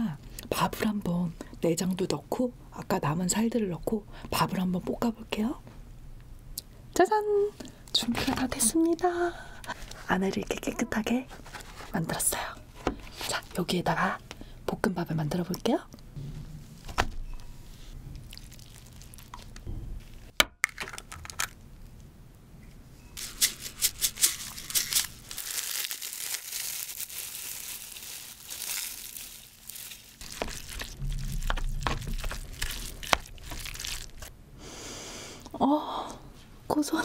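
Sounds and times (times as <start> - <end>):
dried seaweed crinkling: 18.2 - 19.6, 23.2 - 34.3
spoon scraping: 30.2 - 34.3.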